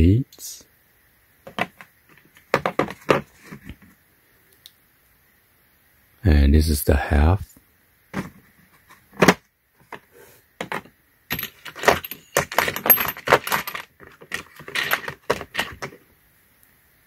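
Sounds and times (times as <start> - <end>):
knocking into plastic tool case: 1.5 - 1.8, 2.5 - 3.3, 9.2 - 10.0, 10.6 - 16.0
metal sockets clinking: 10.6 - 16.0.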